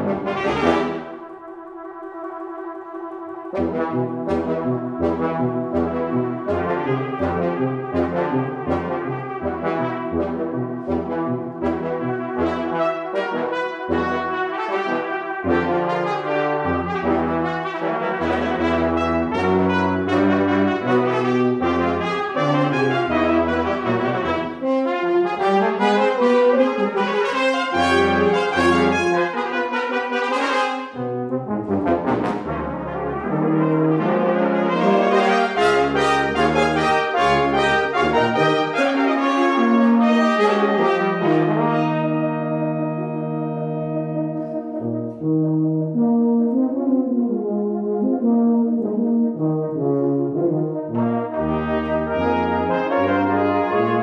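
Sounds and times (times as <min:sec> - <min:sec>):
brass quintet playing: 0:00.0 - 0:54.0.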